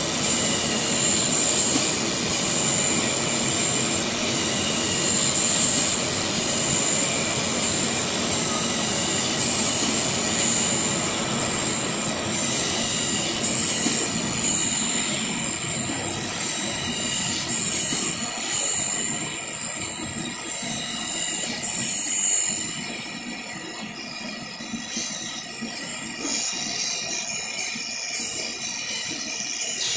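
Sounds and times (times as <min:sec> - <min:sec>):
cutting machine running: 0:00.0 - 0:19.4
high machine whine: 0:00.0 - 0:29.9.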